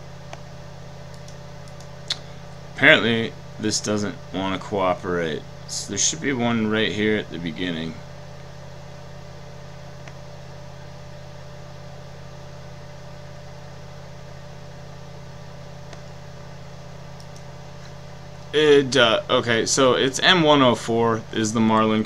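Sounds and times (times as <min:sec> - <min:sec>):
low electrical hum: 0:00.0 - 0:22.0
faint clicks: 0:17.2 - 0:17.5.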